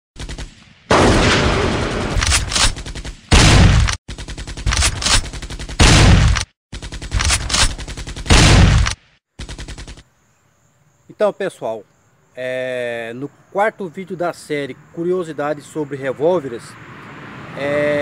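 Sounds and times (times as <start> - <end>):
heavy booming gunshots: 0.2 - 9.8
automatic gunfire: 0.2 - 10.0.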